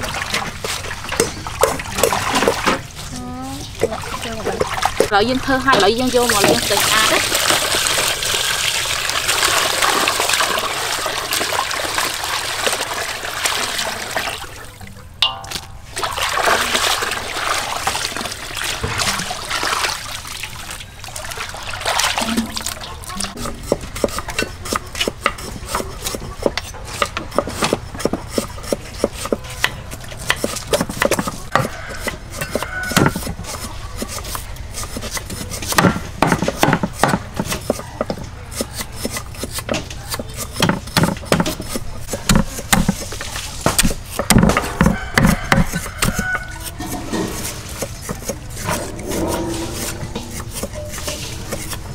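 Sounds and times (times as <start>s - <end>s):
water pouring and splashing: 0.0s - 26.1s, 40.5s - 51.9s
knife mincing on wooden board: 23.3s - 51.9s
cleaver chopping on wooden board: 23.6s - 43.1s, 43.7s - 48.6s.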